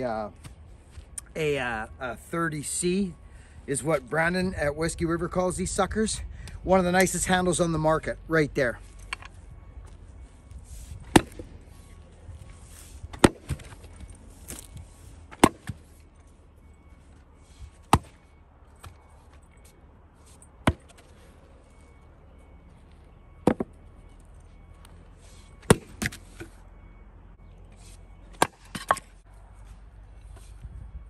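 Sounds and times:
axe chopping firewood: 11.0 - 11.5, 13.0 - 15.9, 17.7 - 19.0, 20.6 - 21.1, 23.4 - 23.7, 25.6 - 26.5, 28.3 - 29.2.

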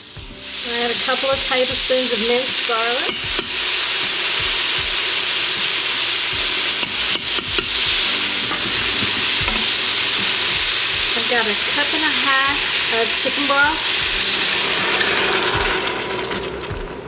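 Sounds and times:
vegetables sizzling in a pot: 0.0 - 17.0
wooden spatula stirring: 6.4 - 11.7.

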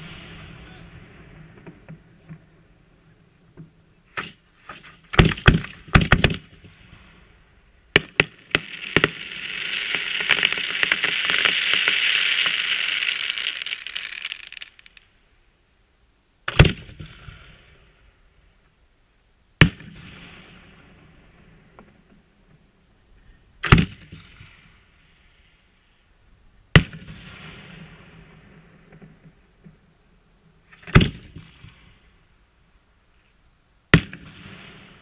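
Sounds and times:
fireworks crackling sizzle: 0.0 - 2.2, 4.5 - 15.5
fireworks bangs: 0.0 - 3.0, 4.2 - 15.2.

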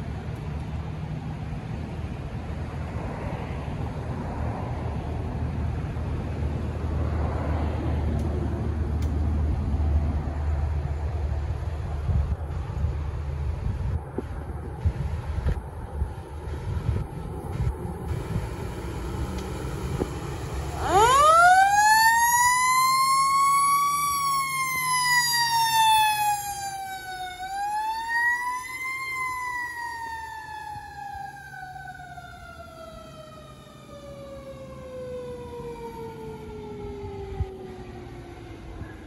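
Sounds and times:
truck engine running low: 3.8 - 39.0
mechanical siren wailing: 17.6 - 39.0.

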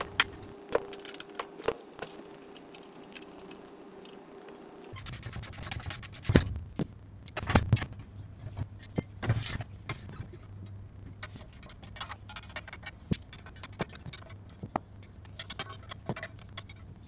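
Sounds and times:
metal parts knocking and scraping: 0.1 - 4.2, 4.8 - 6.6, 8.5 - 10.4, 11.1 - 17.0.

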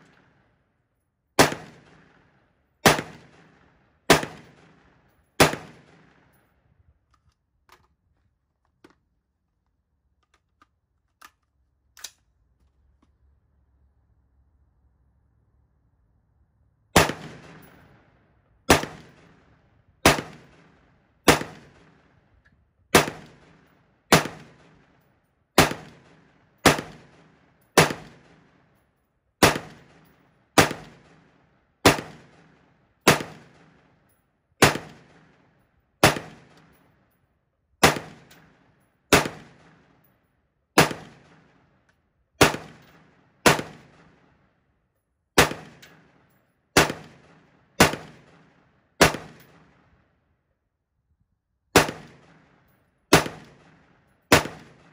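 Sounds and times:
rifle shots echoing: 1.4 - 6.3, 17.0 - 18.1, 18.7 - 22.2, 22.9 - 25.0, 25.6 - 28.6, 29.4 - 34.0, 34.6 - 36.8, 37.8 - 40.1, 40.8 - 41.8, 42.4 - 44.5, 45.4 - 50.0, 51.7 - 54.9.

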